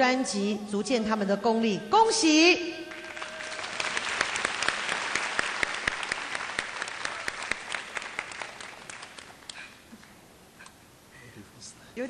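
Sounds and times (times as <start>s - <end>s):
audience applauding: 2.9s - 9.7s.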